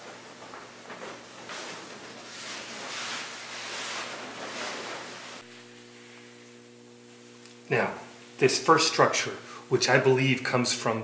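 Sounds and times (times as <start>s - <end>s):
sheet rustling: 0.0s - 6.4s
steady electrical hum: 0.0s - 11.0s.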